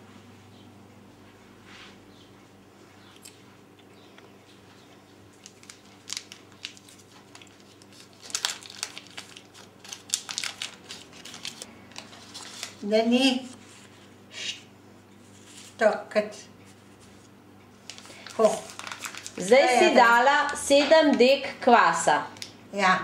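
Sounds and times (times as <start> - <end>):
foil wrapper crinkling: 5.3 - 14.0, 17.2 - 21.4.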